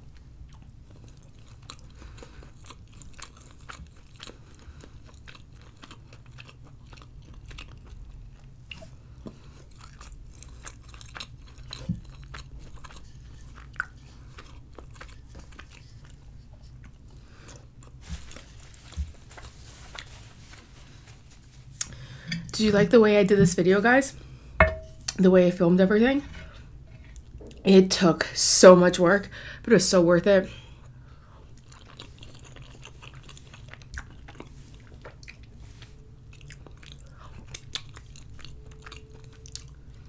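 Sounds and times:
chewing with wet mouth sounds: 0:00.0 - 0:20.1, 0:30.7 - 0:40.0.

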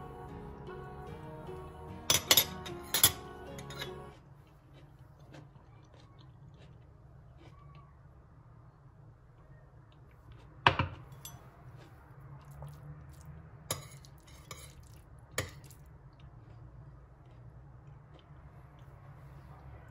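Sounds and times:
low steady hum: 0:00.0 - 0:05.0
metal spoon scraping ceramic plate: 0:02.1 - 0:04.0.

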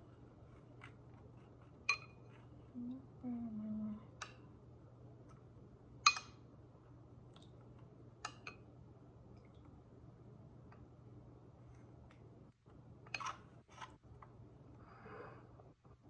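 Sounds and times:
ceramic spoon clinking against dishes: 0:01.9 - 0:02.2.

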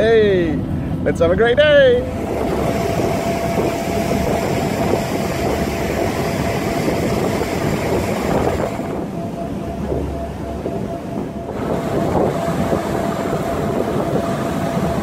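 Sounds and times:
ferry engine humming: 0:00.0 - 0:15.0
rush of wind and water: 0:00.0 - 0:15.0.

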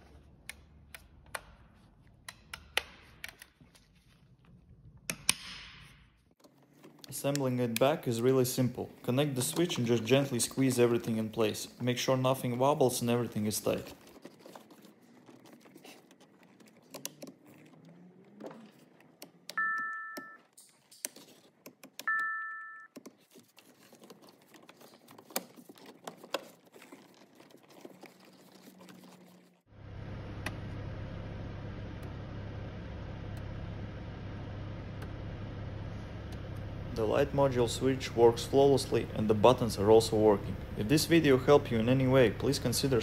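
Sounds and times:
car electronic two-tone chime: 0:19.6 - 0:20.4, 0:22.1 - 0:22.9
low hum of car running: 0:29.7 - 0:43.0.

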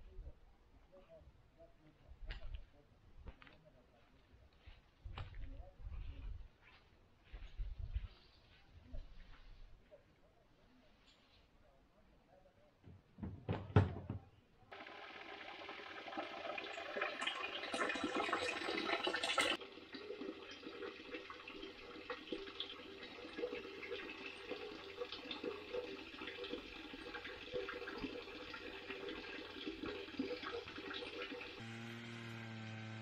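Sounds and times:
water running and splashing: 0:14.7 - 0:31.8.

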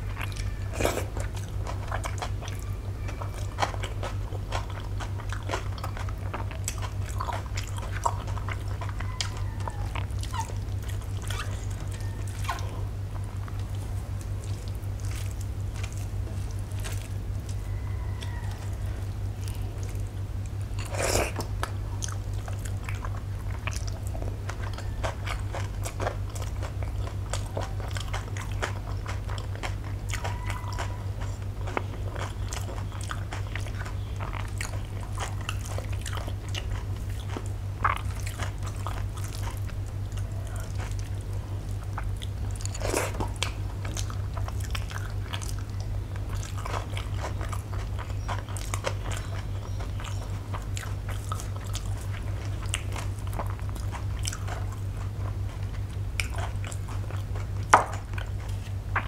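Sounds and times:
chewing: 0:00.0 - 0:59.0
steady low hum: 0:00.0 - 0:59.0.

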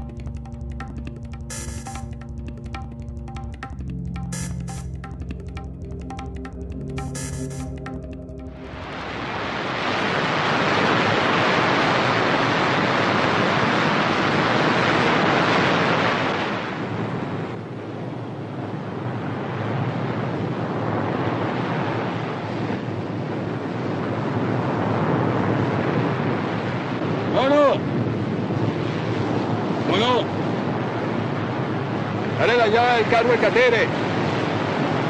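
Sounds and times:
sea surf rushing: 0:08.6 - 0:35.0.

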